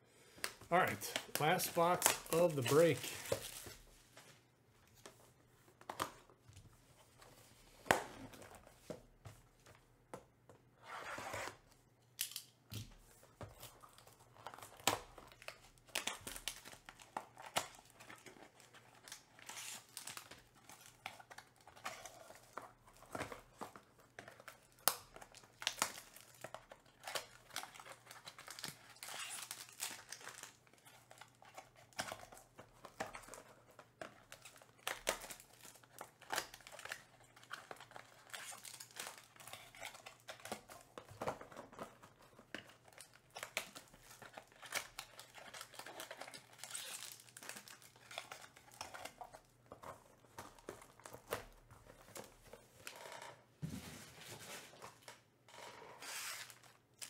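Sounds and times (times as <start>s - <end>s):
plastic wrapping crinkling and tearing: 0.4s - 4.2s, 13.6s - 53.2s, 55.9s - 57.0s
cardboard handling: 0.5s - 9.8s, 53.6s - 55.2s.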